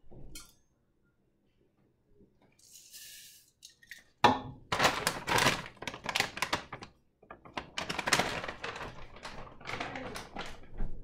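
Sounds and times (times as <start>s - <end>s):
plastic bag crinkling: 4.7s - 10.8s.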